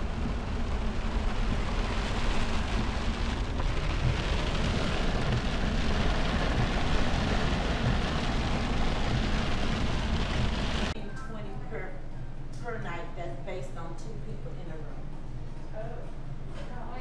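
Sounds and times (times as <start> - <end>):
car rumbling: 0.0 - 11.0
heavy rain on car roof: 0.0 - 11.0.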